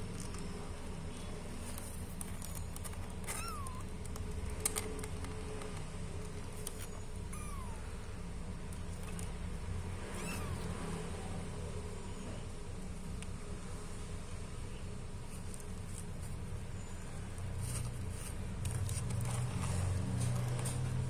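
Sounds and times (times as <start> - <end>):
steady low hum: 0.0 - 20.2
kitten mewing: 3.2 - 4.0, 7.2 - 8.2, 9.9 - 11.5.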